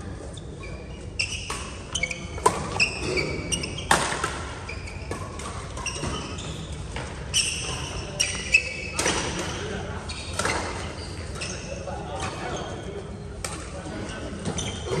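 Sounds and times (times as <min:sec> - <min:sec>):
shoes squeaking on court floor: 0:00.0 - 0:15.0
racket hitting shuttlecock: 0:03.9 - 0:06.2.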